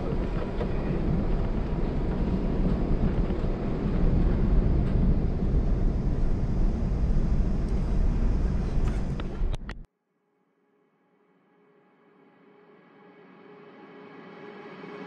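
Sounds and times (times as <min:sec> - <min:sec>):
airliner cabin rumble on runway: 0:00.0 - 0:09.9.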